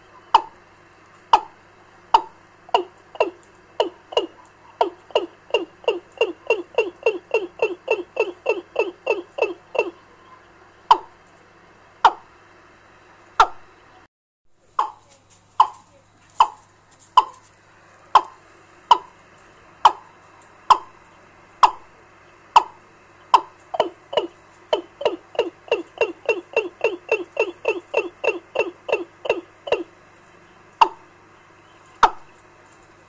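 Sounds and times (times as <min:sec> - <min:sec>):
bird clucking call over loudspeaker: 0:00.0 - 0:00.6, 0:01.2 - 0:11.2, 0:12.0 - 0:12.3, 0:15.6 - 0:16.6, 0:17.2 - 0:17.4, 0:18.1 - 0:19.1, 0:19.8 - 0:21.0, 0:21.6 - 0:21.9, 0:22.5 - 0:29.9, 0:30.8 - 0:31.1, 0:31.9 - 0:32.4.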